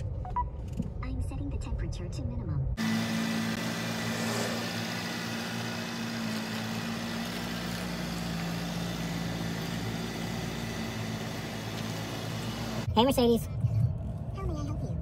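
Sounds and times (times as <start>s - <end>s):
car engine low hum: 2.8s - 15.0s.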